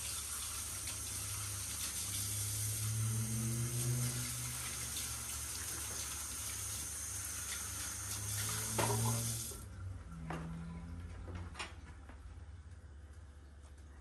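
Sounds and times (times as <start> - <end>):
tap running into sink: 8.3 - 9.4.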